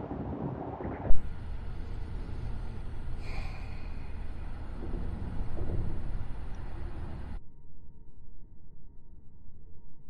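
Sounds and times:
traffic rumble on bridge: 0:01.1 - 0:07.4.

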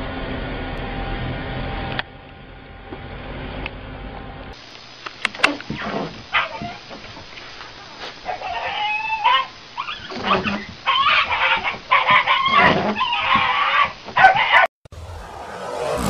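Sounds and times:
small dog yelping and whining: 0:05.9 - 0:06.8, 0:08.3 - 0:14.7
electronic intro music: 0:14.9 - 0:16.0
rising whoosh: 0:14.9 - 0:16.0.

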